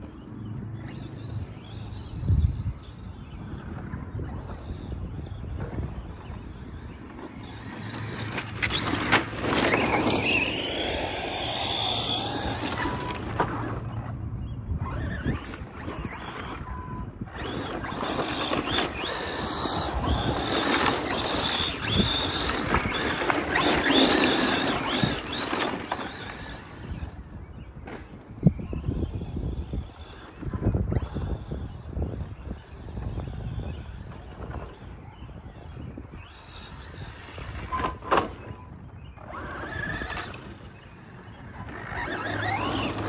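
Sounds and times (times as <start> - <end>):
electric motor whining: 0.0 - 43.0
tyres sliding on pavement: 6.4 - 14.0, 17.4 - 27.2, 36.3 - 43.0.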